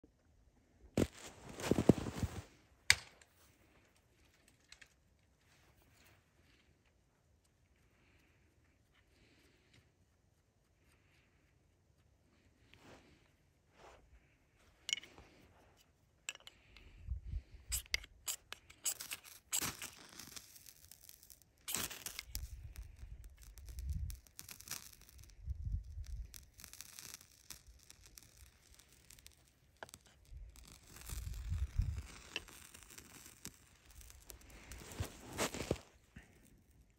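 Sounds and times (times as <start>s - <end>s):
knife scraping ferrocerium rod: 17.7s - 22.4s.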